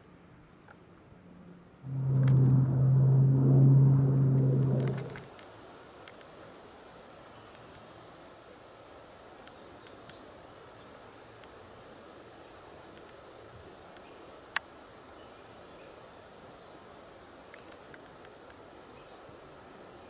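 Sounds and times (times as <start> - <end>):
loud low hum with rushing: 1.8 - 5.3.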